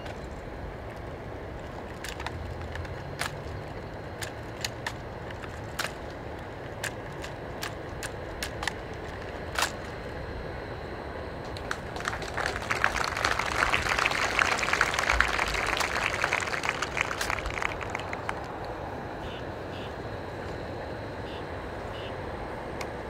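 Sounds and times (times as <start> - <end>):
outdoor background: 0.0 - 23.0
rifle clicks and clacks: 1.6 - 10.0.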